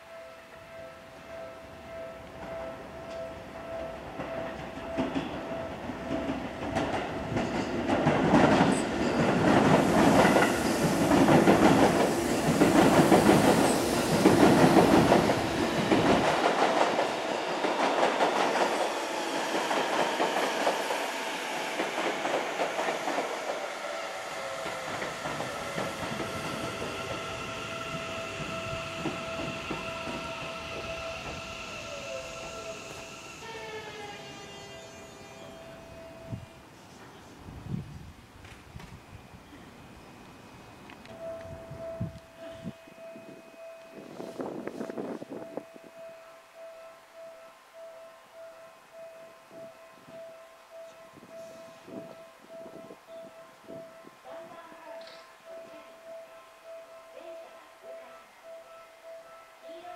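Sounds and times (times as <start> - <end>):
train wheels clattering: 4.2 - 33.0
train braking whine: 8.7 - 17.8, 18.4 - 37.0, 38.8 - 54.2.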